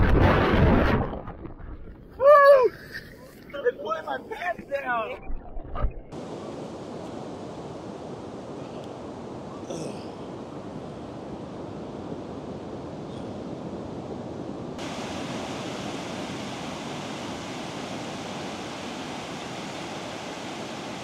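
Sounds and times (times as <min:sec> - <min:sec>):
ocean surf on a beach: 0:06.1 - 0:21.0
bright steady hiss: 0:14.8 - 0:21.0.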